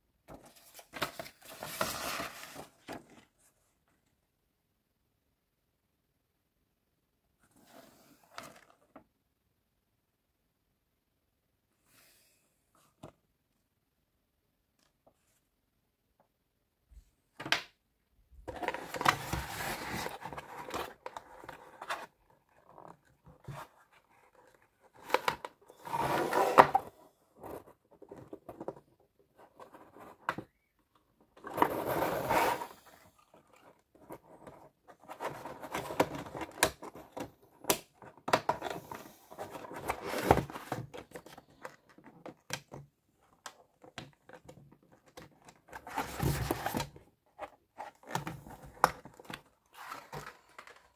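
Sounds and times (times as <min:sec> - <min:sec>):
cardboard scraping and rustling: 0:00.3 - 0:03.4, 0:18.5 - 0:30.5, 0:31.4 - 0:37.4, 0:38.4 - 0:41.9, 0:45.1 - 0:50.9.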